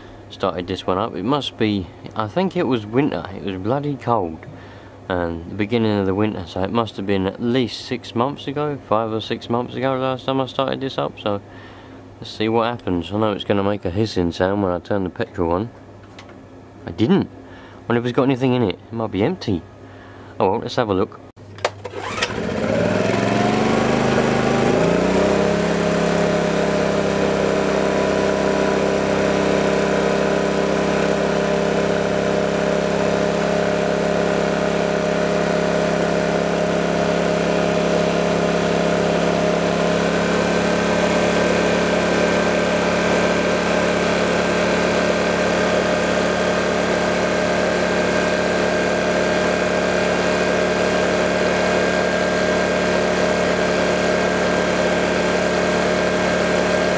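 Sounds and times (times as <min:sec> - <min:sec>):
recoil pull-start: 0:21.5 - 0:56.9
generator engine running: 0:21.6 - 0:56.9.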